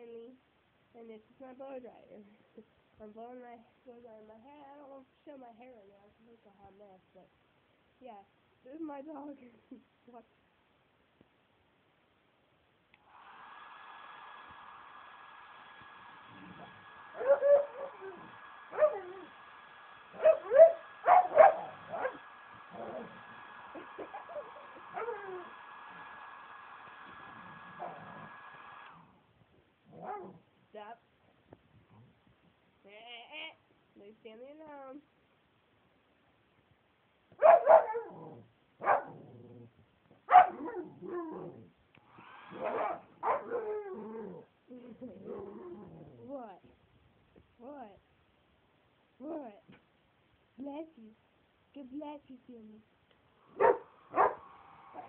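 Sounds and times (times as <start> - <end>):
dog barking and yipping: 17.1 - 19.3, 20.2 - 23.1, 23.8 - 25.5, 30.0 - 30.4, 37.4 - 38.2, 38.8 - 39.2, 40.3 - 41.2, 42.5 - 44.0, 53.5 - 55.0.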